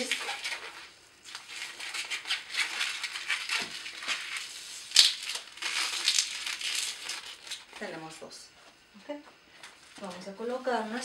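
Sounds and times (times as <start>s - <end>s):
balloon squeaking and rubbing: 0.0s - 7.2s.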